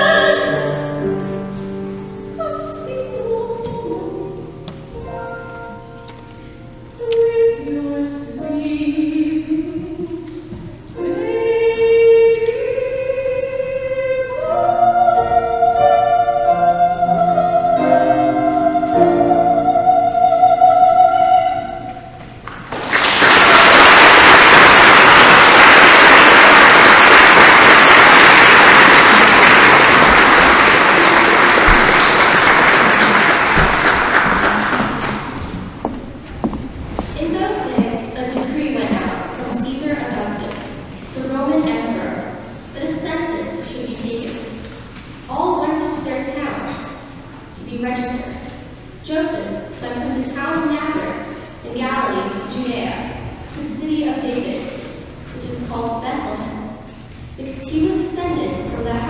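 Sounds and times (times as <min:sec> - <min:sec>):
congregation singing a carol: 0:11.0 - 0:22.2
congregation applauding: 0:22.4 - 0:35.6.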